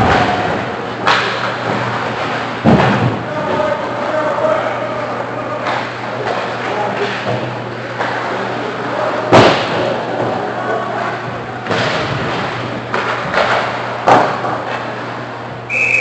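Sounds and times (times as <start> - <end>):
puck and sticks knocking boards: 0.0 - 3.7, 9.3 - 10.4, 11.6 - 14.9
arena hum: 0.0 - 16.0
referee's whistle: 15.7 - 16.0.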